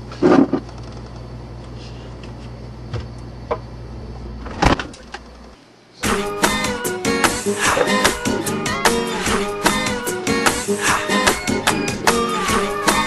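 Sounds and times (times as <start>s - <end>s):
refrigerator hum: 0.0s - 13.0s
acoustic guitar music: 6.1s - 12.6s.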